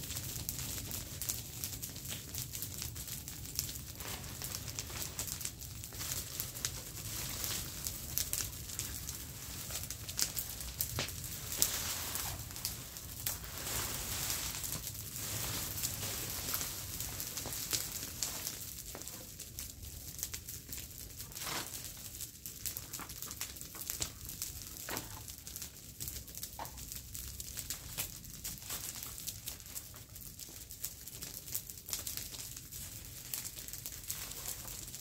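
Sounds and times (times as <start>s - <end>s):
fire crackling: 0.0s - 35.0s
dry leaves rustling under rake: 4.0s - 18.7s, 21.3s - 22.0s, 33.3s - 35.0s.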